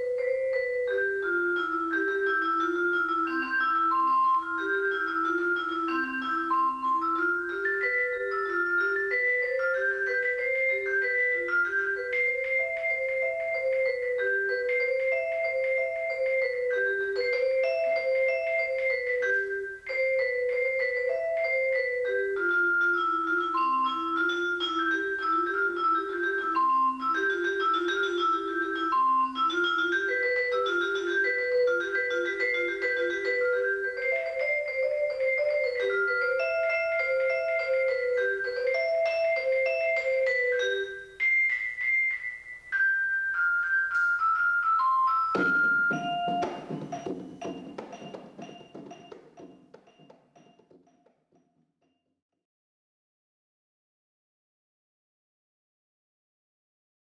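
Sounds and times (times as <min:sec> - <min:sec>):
vibraphone melody: 0:00.0 - 0:51.2.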